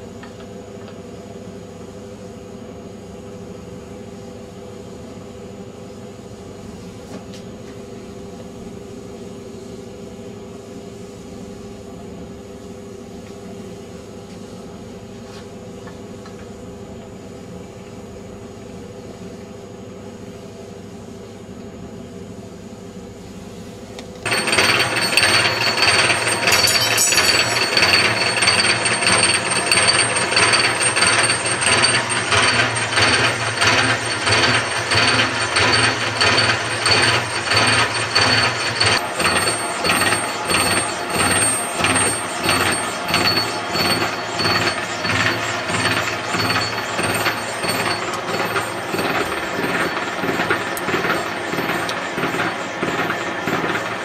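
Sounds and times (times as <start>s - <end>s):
milling machine cutting strokes: 24.3s - 28.6s, 39.2s - 52.3s
machine hum: 39.0s - 54.0s.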